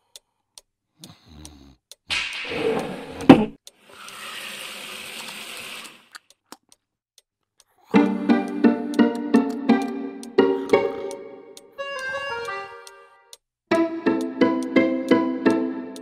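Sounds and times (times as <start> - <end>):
alarm clock ticking: 7.9 - 16.0
plucked-string music: 8.0 - 13.1, 13.7 - 16.0.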